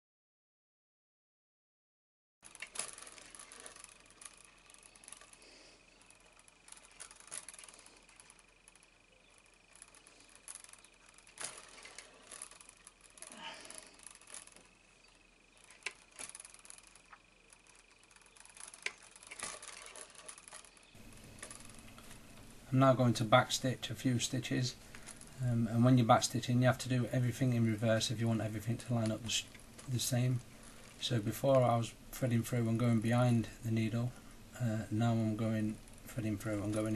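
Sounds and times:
soft clicks and rustles: 0:02.4 - 0:32.0, 0:35.4 - 0:36.9
faint steady high whine: 0:02.4 - 0:36.9
thread drawn through leather: 0:18.6 - 0:22.2.

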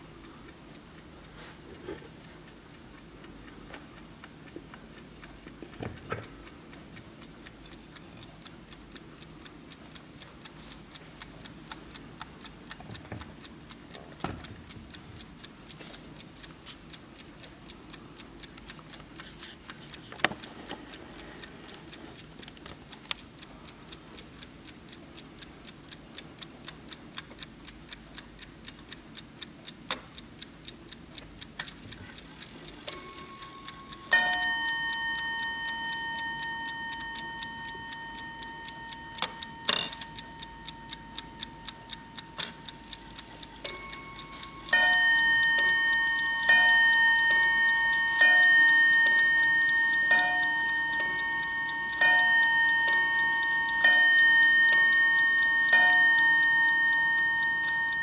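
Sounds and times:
clock ticking: 0:00.0 - 0:58.0
clock striking hammer ringing: 0:33.0 - 0:42.8, 0:43.7 - 0:58.0.

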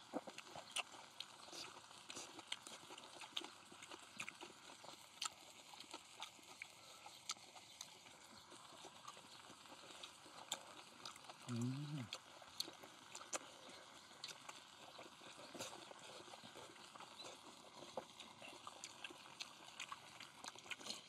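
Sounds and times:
pork sizzling on a griddle: 0:00.0 - 0:21.0.

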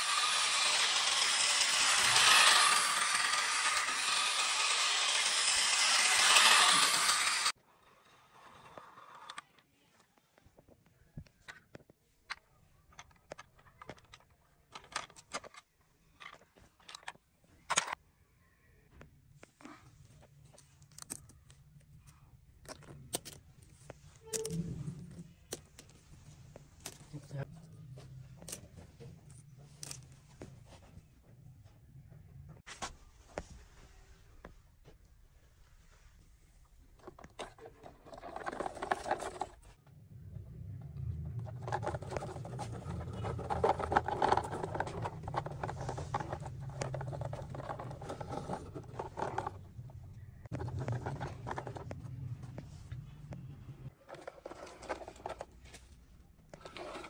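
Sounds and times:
plastic toy track clicking: 0:00.0 - 0:09.6, 0:12.9 - 0:15.6, 0:16.2 - 0:18.0, 0:37.0 - 0:39.7, 0:41.4 - 0:49.7, 0:50.5 - 0:51.9, 0:54.1 - 0:55.5, 0:56.5 - 0:57.0
small plastic clicks and rattles: 0:11.4 - 0:18.0, 0:41.4 - 0:49.7
low rumble: 0:39.8 - 0:43.4.

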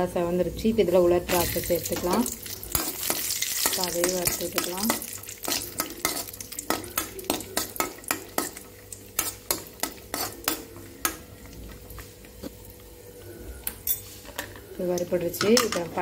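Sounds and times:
light frying sizzle: 0:00.7 - 0:13.0
spoon scraping and clinking on pan: 0:09.2 - 0:10.7.

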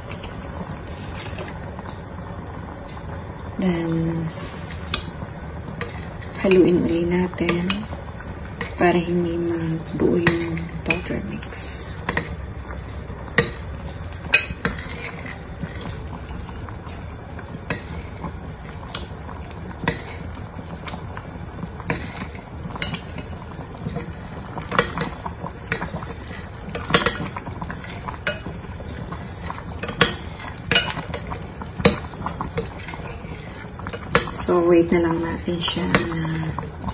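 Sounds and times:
metal spoon stirring porridge: 0:13.4 - 0:16.4.

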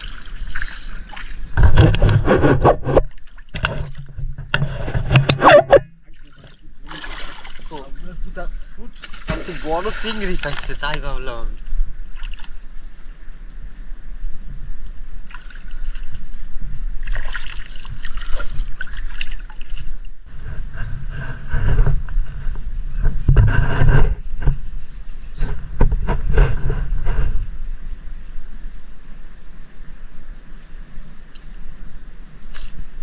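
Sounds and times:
river water splashing: 0:00.0 - 0:04.1, 0:05.4 - 0:13.5, 0:15.0 - 0:20.2.

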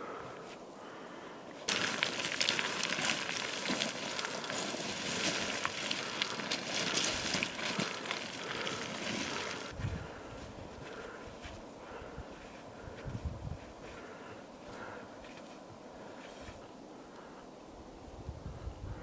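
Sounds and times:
footsteps crunching on loose scree: 0:01.5 - 0:16.7
small stones clattering: 0:01.7 - 0:09.7.

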